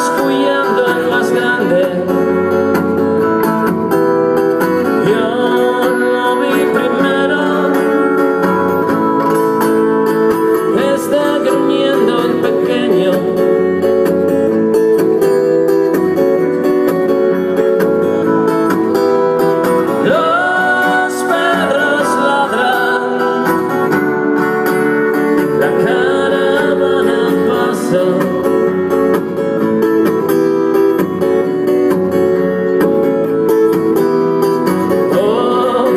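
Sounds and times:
man singing: 0.0s - 3.3s, 4.8s - 8.7s, 10.6s - 14.0s, 19.8s - 24.0s, 25.5s - 29.4s, 34.9s - 35.9s
acoustic guitar: 0.0s - 35.9s.

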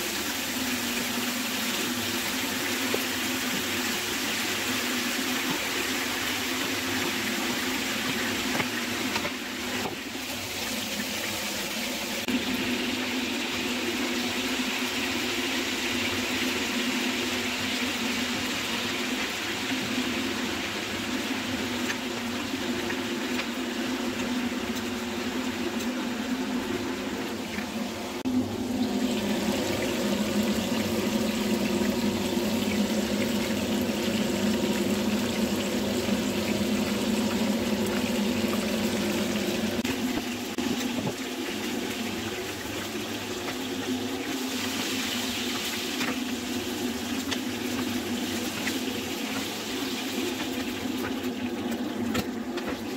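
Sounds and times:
pot of rice bubbling: 0.0s - 52.9s.

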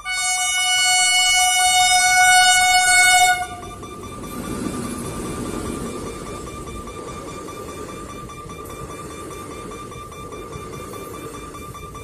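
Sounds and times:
locomotive air horn blast: 0.0s - 3.6s
approaching train rumble: 0.0s - 12.0s
rapid pulsing beep: 3.6s - 12.0s.

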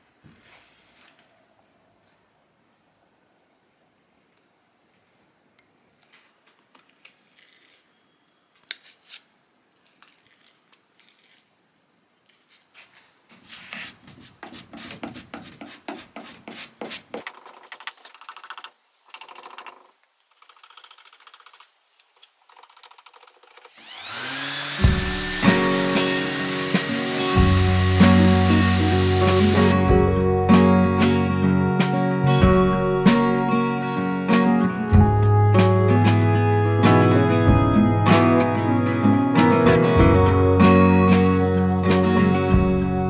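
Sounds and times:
sanding pad scraping wood: 12.8s - 19.6s, 22.6s - 29.8s
guitar music: 24.8s - 43.0s.

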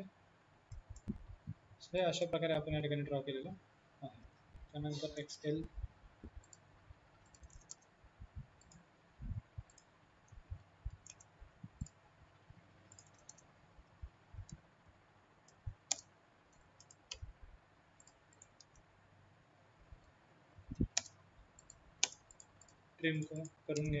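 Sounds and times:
computer mouse clicks: 0.7s - 1.3s, 6.2s - 6.6s, 7.2s - 7.9s, 8.6s - 8.9s, 9.6s - 12.0s, 12.8s - 13.5s, 15.5s - 17.3s, 18.0s - 18.8s, 20.7s - 24.0s.

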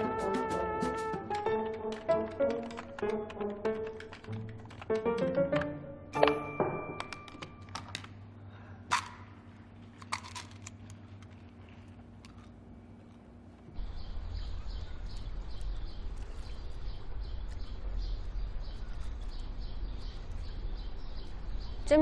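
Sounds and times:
quiet hum: 7.5s - 22.0s
small birds chirping: 13.8s - 22.0s.

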